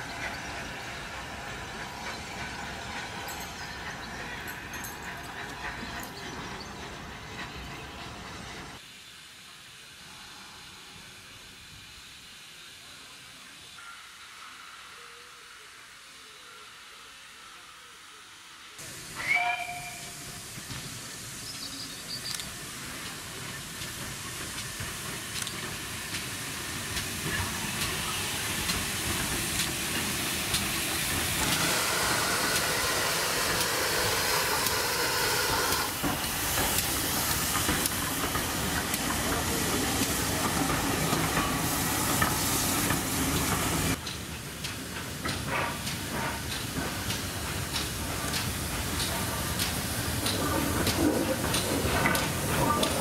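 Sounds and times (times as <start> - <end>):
steam hissing: 0.0 - 53.0
whistle-like note: 19.2 - 20.2
wheels clicking over rail joints: 22.4 - 53.0.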